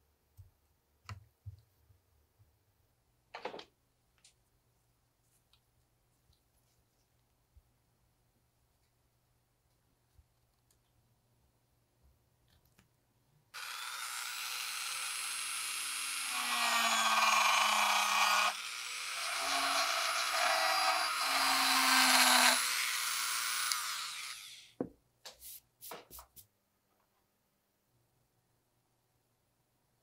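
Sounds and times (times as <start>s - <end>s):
rotary tool whining: 13.6s - 24.7s.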